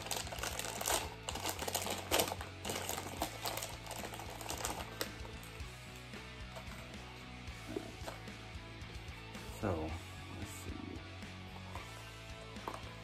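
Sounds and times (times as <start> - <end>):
packaging snapping: 0.0 - 5.1
packaging clicks and rustles: 0.0 - 5.4.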